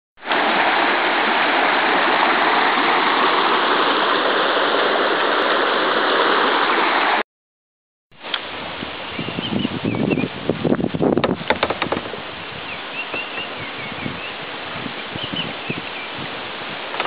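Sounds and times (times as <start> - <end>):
river water rushing over rocks: 0.2 - 7.2.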